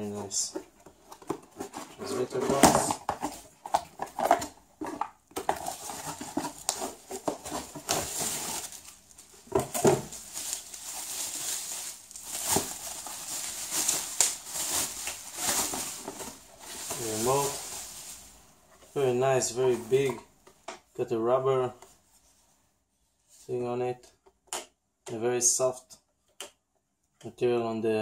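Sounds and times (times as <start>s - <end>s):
bubble wrap and cardboard crinkling: 0.2s - 20.3s.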